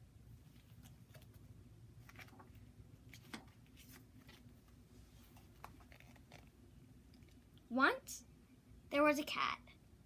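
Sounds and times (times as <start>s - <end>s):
book pages clicking and rustling: 0.6s - 6.6s.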